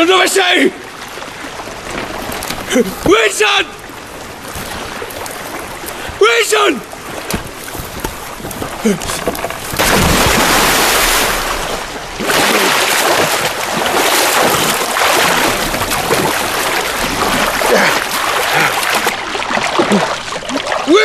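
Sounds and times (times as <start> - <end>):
swimming strokes in waves: 0.8 - 21.0
person plunging into water: 6.9 - 20.9.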